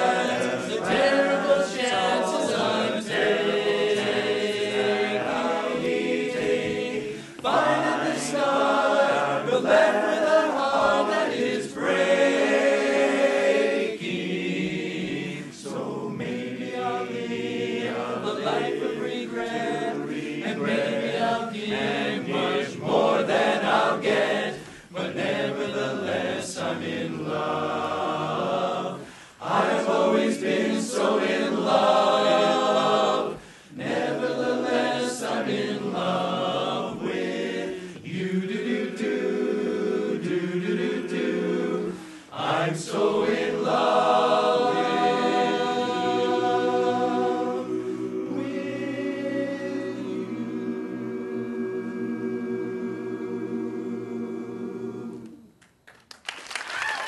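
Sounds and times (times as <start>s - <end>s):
men's chorus singing a cappella: 0.0s - 55.5s.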